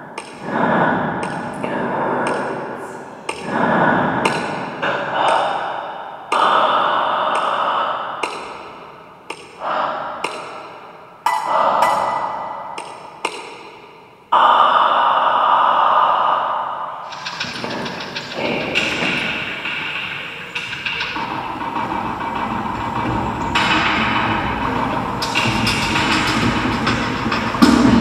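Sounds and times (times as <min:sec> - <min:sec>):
electronic pings and clicks: 0:11.3 - 0:12.2.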